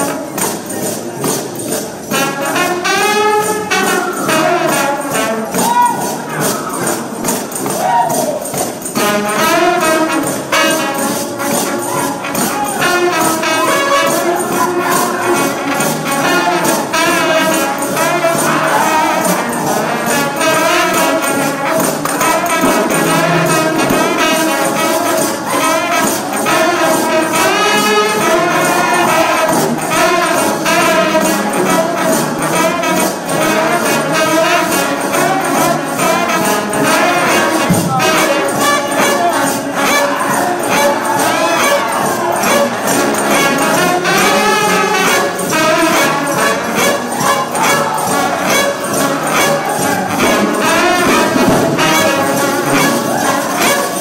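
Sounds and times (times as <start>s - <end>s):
tambourine beat: 0.0s - 54.0s
trombone band playing: 0.0s - 54.0s.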